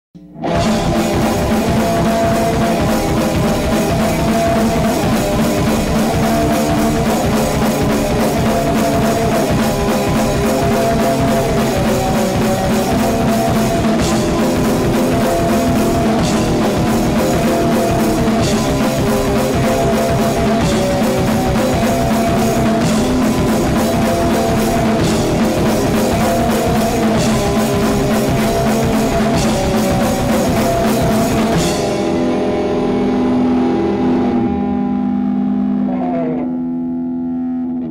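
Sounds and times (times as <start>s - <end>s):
rock music with drums and guitar: 0.2s - 36.6s.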